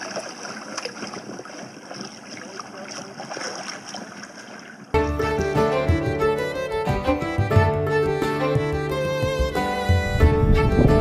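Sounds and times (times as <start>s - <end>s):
water rushing along boat hull: 0.0s - 7.2s
bowed string music: 5.0s - 11.0s.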